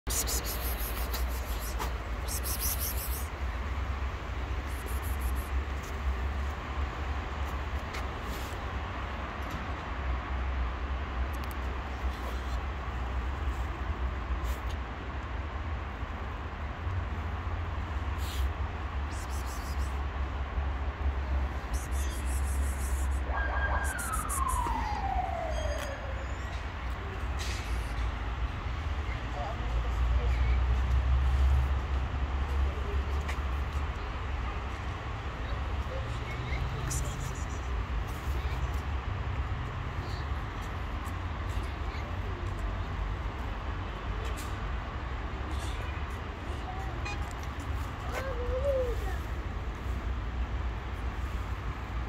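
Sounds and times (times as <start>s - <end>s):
low traffic rumble: 0.0s - 52.0s
siren wail: 23.2s - 26.4s.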